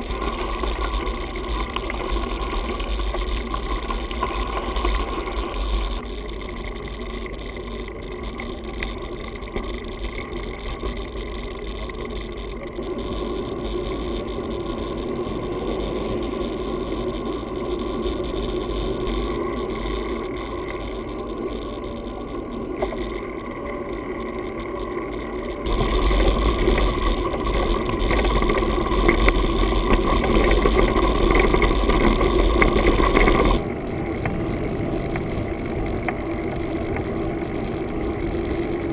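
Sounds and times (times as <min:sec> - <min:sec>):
bike rattling: 0:00.0 - 0:38.9
bike tyre noise: 0:00.0 - 0:38.9
tyres rumbling on gravel: 0:25.6 - 0:33.7.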